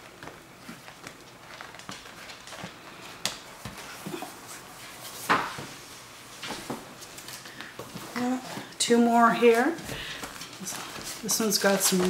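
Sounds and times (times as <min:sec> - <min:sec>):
swatch pages rustling: 0:00.0 - 0:08.4.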